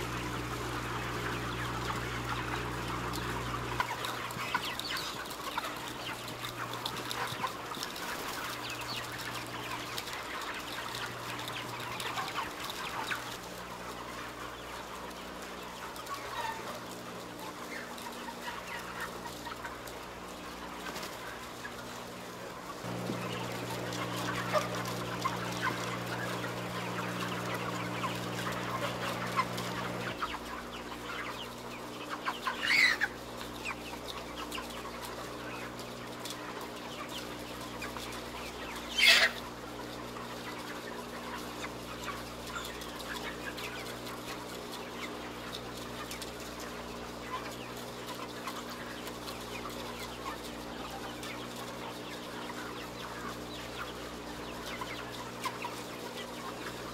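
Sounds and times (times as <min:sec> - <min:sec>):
chickens clucking and chirping: 0:00.0 - 0:56.9
louder chicken calls: 0:22.8 - 0:30.3
steady low hum: 0:22.8 - 0:30.3.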